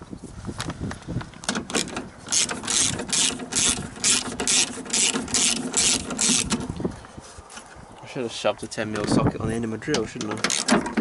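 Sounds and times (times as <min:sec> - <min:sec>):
ratchet clicking: 0:01.5 - 0:06.6.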